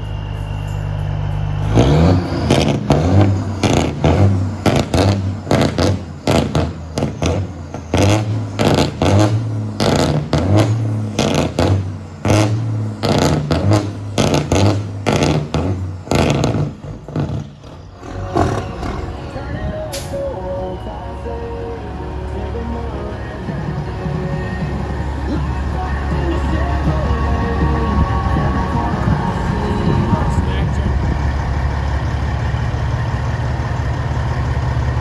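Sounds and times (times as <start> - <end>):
crackling exhaust: 0.0 - 20.3
diesel truck engine revving: 0.0 - 35.0.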